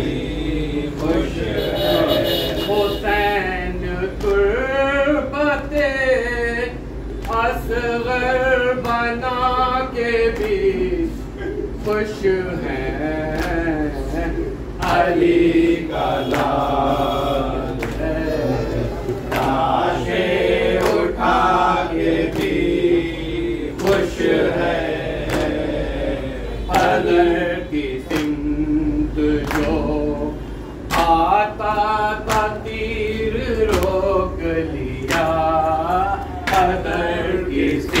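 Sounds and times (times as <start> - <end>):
men chanting in unison: 0.0 - 38.0.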